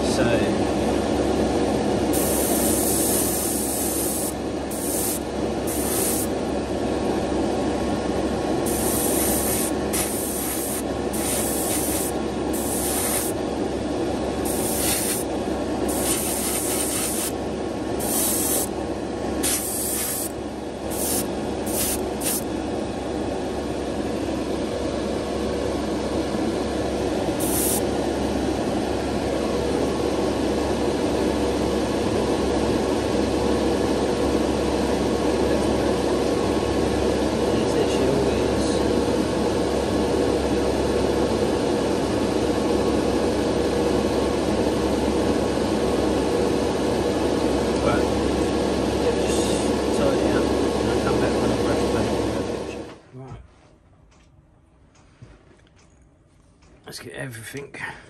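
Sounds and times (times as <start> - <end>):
extractor fan humming: 0.0 - 53.0
paint spray hisses: 2.1 - 6.3, 8.7 - 13.4, 14.5 - 15.3, 15.9 - 17.4, 18.0 - 18.7, 19.4 - 22.5, 27.4 - 27.8.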